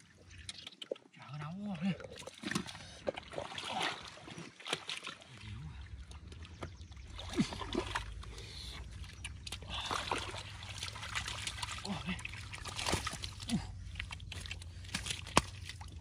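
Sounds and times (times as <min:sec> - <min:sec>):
water sloshing and splashing: 0:00.0 - 0:16.0
low steady rumble: 0:05.4 - 0:16.0.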